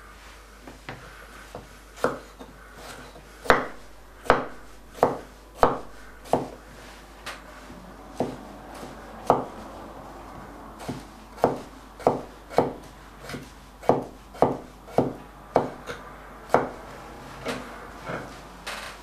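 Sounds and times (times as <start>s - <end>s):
knife chopping on wooden board: 0.8s - 6.6s, 8.2s - 9.6s, 10.8s - 16.8s.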